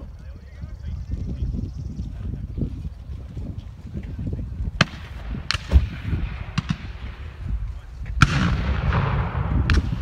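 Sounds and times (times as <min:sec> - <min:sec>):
rolling echo: 0:04.6 - 0:10.0
black-powder gunshots: 0:04.8 - 0:07.4, 0:08.2 - 0:10.0.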